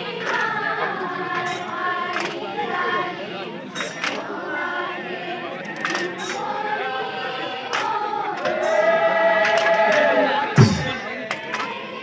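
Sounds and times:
group singing folk song: 0.0s - 12.0s
sharp thump: 10.6s - 11.0s.

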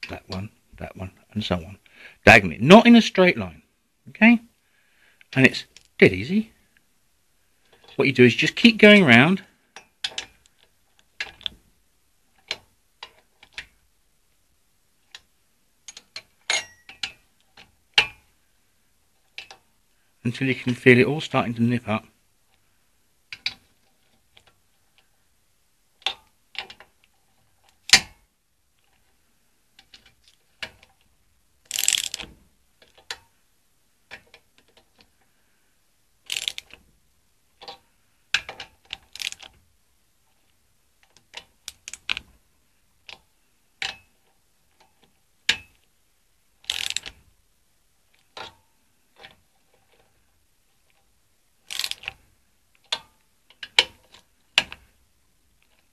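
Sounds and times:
ratchet torque wrench clicking: 31.7s - 32.2s, 36.3s - 36.7s, 39.1s - 39.5s, 46.7s - 47.1s, 51.7s - 52.1s.

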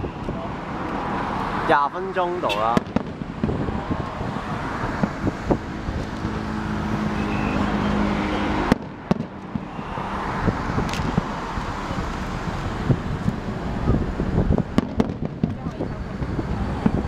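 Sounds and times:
fireworks popping and banging: 2.5s - 6.4s, 8.6s - 9.9s, 10.8s - 11.8s, 14.4s - 17.0s.

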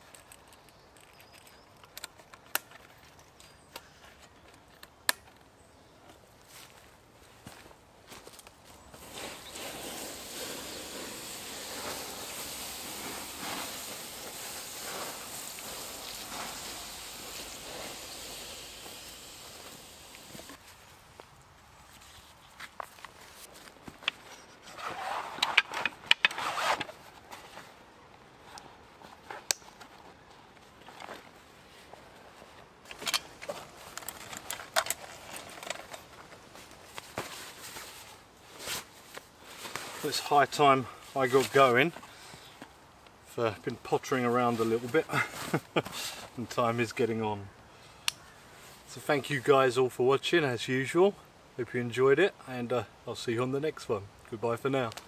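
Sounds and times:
canvas sheath rustling and knocking: 28.9s - 40.2s.

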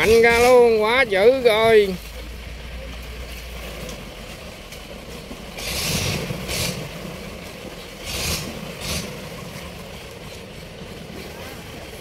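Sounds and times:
boat engine running: 0.0s - 12.0s
propeller churning water: 0.0s - 12.0s.

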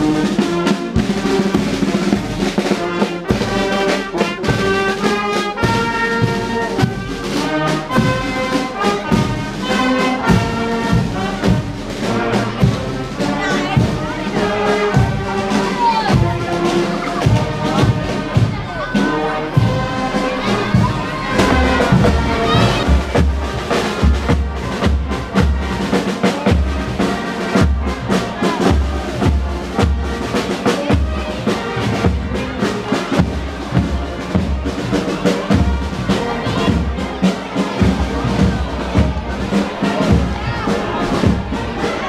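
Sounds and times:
brass band playing march: 0.0s - 42.0s
murmur of crowd: 0.0s - 42.0s
bass drum beat: 19.5s - 25.8s.

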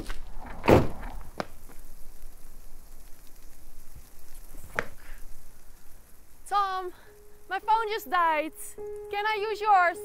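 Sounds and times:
car door shutting: 0.0s - 1.4s
low steady background noise: 0.0s - 10.0s.

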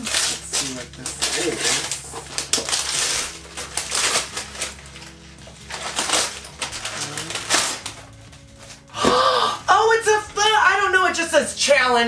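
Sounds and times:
wrapping paper tearing and crinkling: 0.0s - 9.0s.

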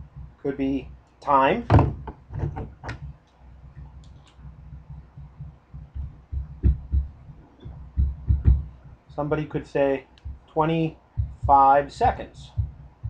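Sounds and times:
steady low hum: 0.0s - 13.0s
dull thumps on whiteboard: 1.7s - 3.2s, 4.8s - 8.7s.

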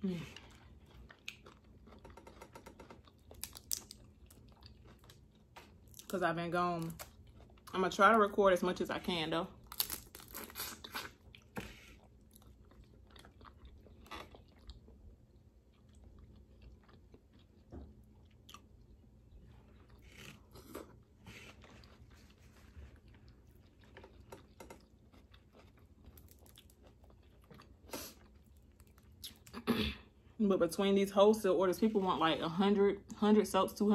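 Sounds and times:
chewing: 0.3s - 6.1s, 7.0s - 7.7s, 9.7s - 29.5s
crawfish shells cracking: 2.0s - 5.2s, 9.7s - 10.6s.

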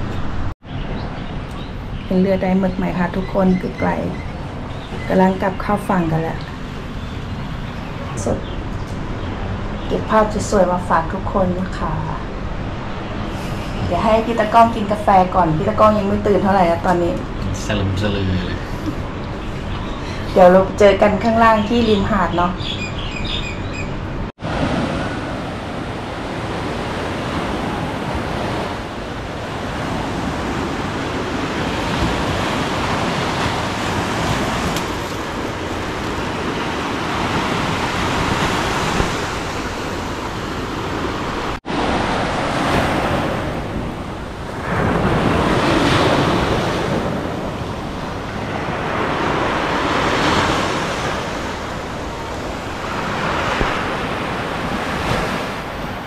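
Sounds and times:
wind across microphone: 0.0s - 56.0s
sea waves washing onto beach: 24.4s - 56.0s.

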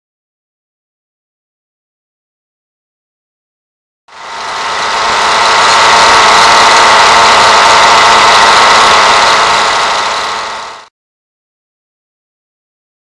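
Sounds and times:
model diesel engine buzzing: 4.1s - 10.9s.

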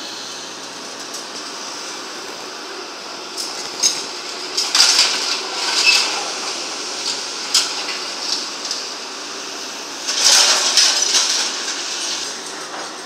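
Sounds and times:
backhoe engine running: 0.0s - 13.0s
crusher metallic clanks and scraping: 3.4s - 8.8s, 10.1s - 13.0s.

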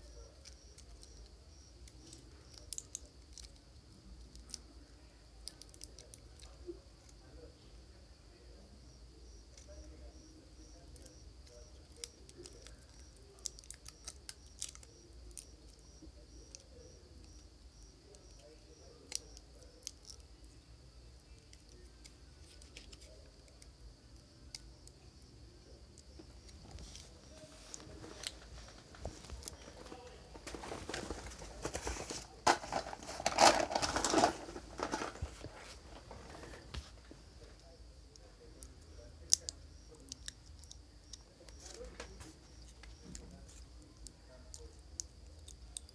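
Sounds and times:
insect chirping: 0.0s - 45.9s
rustling crinkling handling noise: 26.2s - 37.6s.

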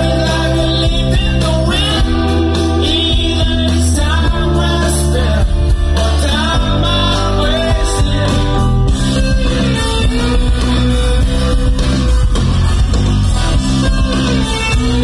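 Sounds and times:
man singing lead vocal: 0.0s - 11.0s
live rock band playing: 0.0s - 15.0s.

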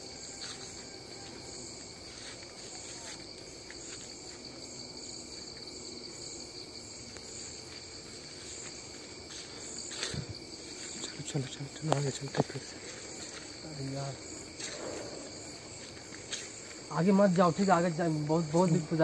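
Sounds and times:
crickets chirring: 0.0s - 19.0s.

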